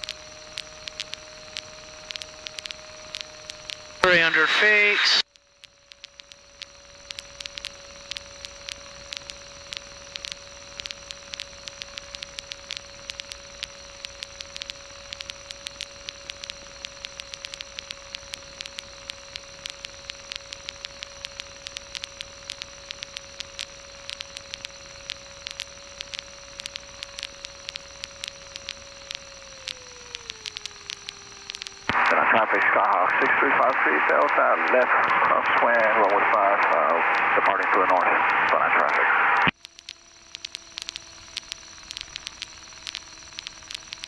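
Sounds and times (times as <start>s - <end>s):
sharp clicks: 0.0s - 4.8s, 5.6s - 44.0s
steady hiss: 0.0s - 5.2s, 19.4s - 39.5s
crackling static: 0.0s - 44.0s
mid-pitched whine: 0.0s - 44.0s.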